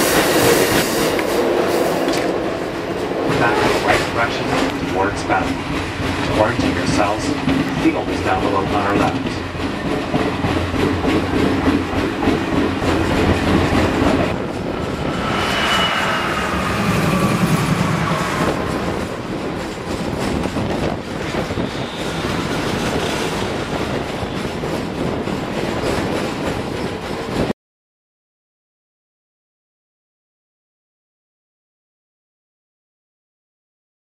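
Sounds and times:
diesel locomotives passing: 0.0 - 27.5
freight cars rumbling and clacking: 0.0 - 27.5
high tones sliding down: 14.3 - 19.4.

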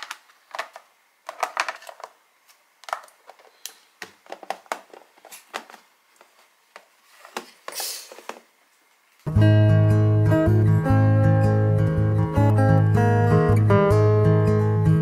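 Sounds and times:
plastic film crinkling: 0.0 - 8.3.

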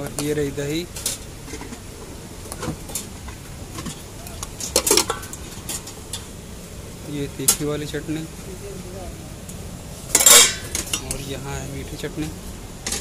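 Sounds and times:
steel ladles clinking on bowls: 10.1 - 11.3.

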